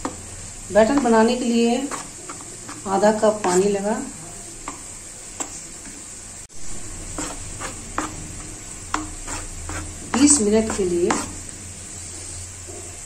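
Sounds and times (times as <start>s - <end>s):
spoon scraping batter in bowl: 0.0s - 3.9s, 7.0s - 11.5s
spoon tapping bowl: 8.9s - 11.4s.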